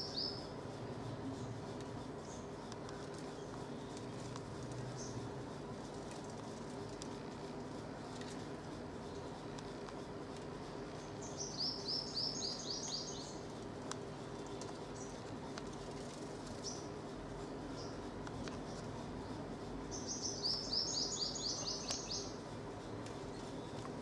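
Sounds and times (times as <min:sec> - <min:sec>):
bird high-pitched trills: 0:11.2 - 0:13.4, 0:19.9 - 0:22.4.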